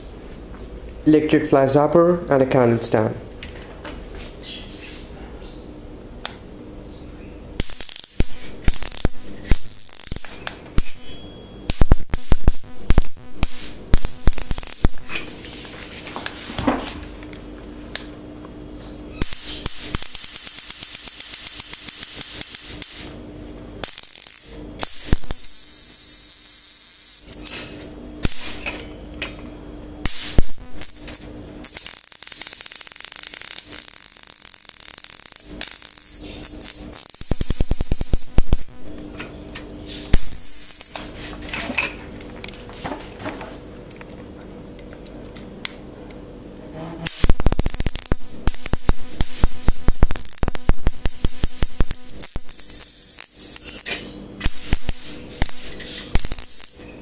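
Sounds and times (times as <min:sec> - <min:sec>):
electric sparks snapping: 0:07.6 - 0:11.1, 0:11.7 - 0:15.6, 0:19.2 - 0:23.2, 0:23.8 - 0:28.8, 0:30.0 - 0:41.4, 0:47.0 - 0:56.8
hissing electric arc: 0:07.6 - 0:16.0, 0:19.2 - 0:23.2, 0:23.8 - 0:28.8, 0:30.0 - 0:39.1, 0:39.9 - 0:41.4, 0:47.0 - 0:56.8.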